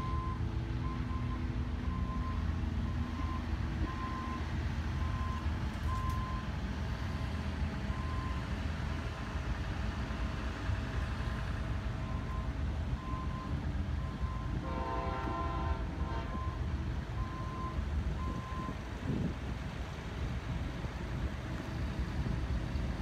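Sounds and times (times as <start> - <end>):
vehicle backup alarm beeping: 0.0 - 8.5, 11.3 - 14.6, 16.1 - 19.3
low steady rumble: 0.0 - 23.0.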